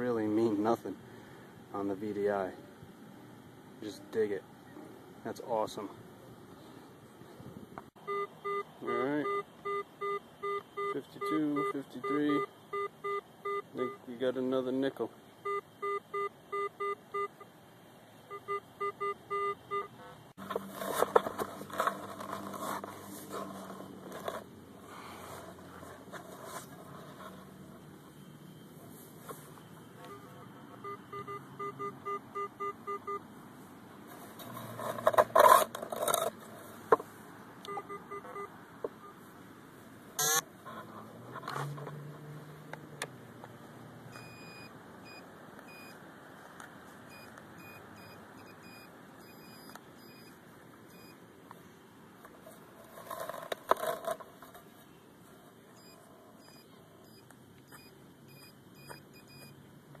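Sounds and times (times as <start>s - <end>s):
metal detector beeping: 8.0s - 14.1s, 15.4s - 17.4s, 18.3s - 24.4s, 28.1s - 33.2s, 37.6s - 39.2s, 40.2s - 40.4s, 44.2s - 46.0s, 47.1s - 51.2s, 55.8s - 59.6s
soil being dug and scraped: 20.4s - 27.8s, 34.1s - 36.8s.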